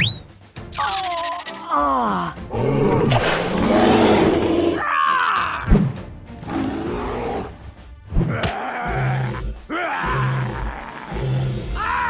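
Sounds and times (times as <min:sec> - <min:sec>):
background music: 0:00.0 - 0:12.0
dinosaur roars and growls: 0:02.0 - 0:05.6, 0:06.4 - 0:07.6, 0:08.2 - 0:12.0.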